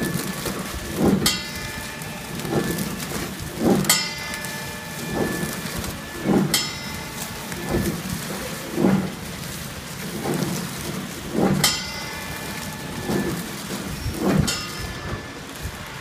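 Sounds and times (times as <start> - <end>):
packaging machine rush: 0.0 - 16.0.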